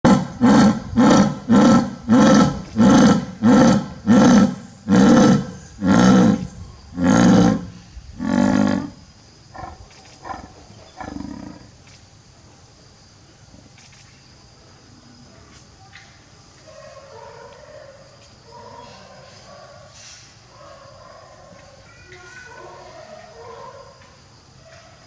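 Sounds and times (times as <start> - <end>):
jaguar deep rhythmic grunts: 0.0 - 11.7.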